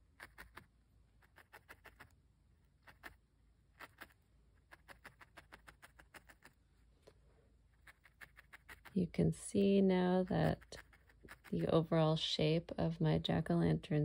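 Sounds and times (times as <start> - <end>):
felting needle poking wool: 2.8 - 6.6, 7.7 - 9.0, 10.2 - 11.8.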